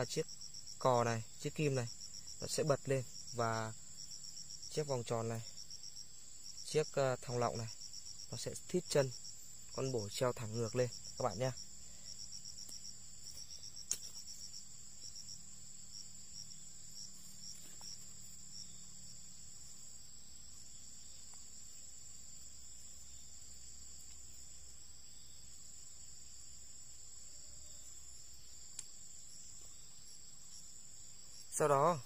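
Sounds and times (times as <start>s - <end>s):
insects trilling: 0.0s - 32.0s
pulsing insect chirp: 0.0s - 32.0s
faint clicks of sticks handled: 12.6s - 14.3s.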